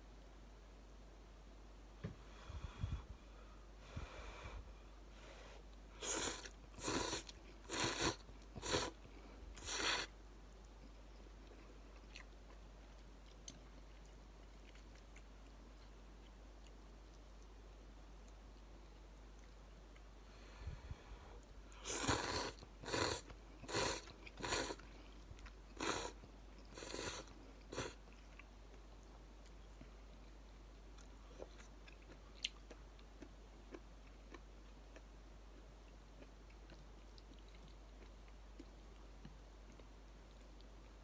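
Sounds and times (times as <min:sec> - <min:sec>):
person slurping noodles: 0:06.0 - 0:09.0, 0:09.6 - 0:10.1, 0:21.8 - 0:24.8, 0:25.8 - 0:28.0.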